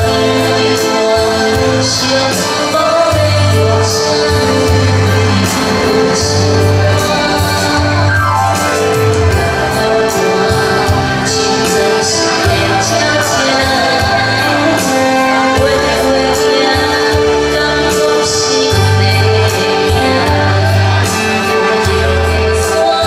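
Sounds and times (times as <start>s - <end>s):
electronic keyboard: 0.0s - 23.0s
saxophone: 0.0s - 23.0s
woman singing a ballad: 0.0s - 23.0s
walking bass line: 1.3s - 17.9s
steady beat: 2.4s - 15.8s.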